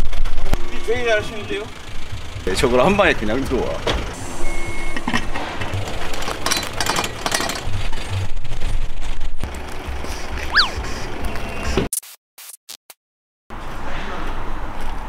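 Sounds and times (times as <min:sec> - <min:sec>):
tow truck engine running: 0:00.0 - 0:11.8
metal clanks and rattles: 0:04.9 - 0:09.2
short falling chirp: 0:10.5 - 0:10.8.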